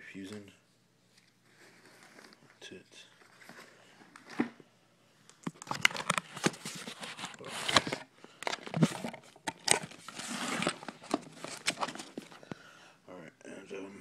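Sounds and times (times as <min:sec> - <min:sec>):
cable handling rustling and clicks: 0:05.3 - 0:12.6.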